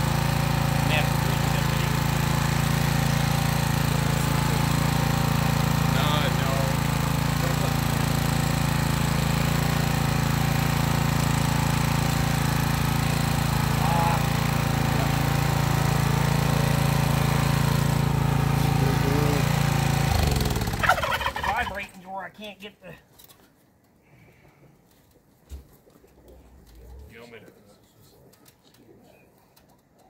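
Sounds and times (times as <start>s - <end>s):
small gasoline engine running: 0.0s - 21.8s.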